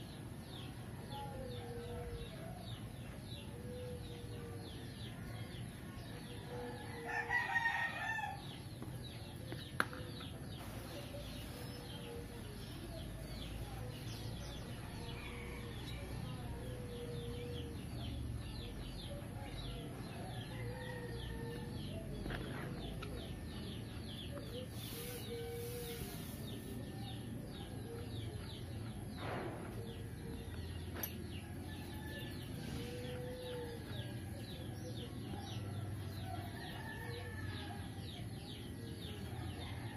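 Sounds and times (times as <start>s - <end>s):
bird calls: 23.9s - 28.6s.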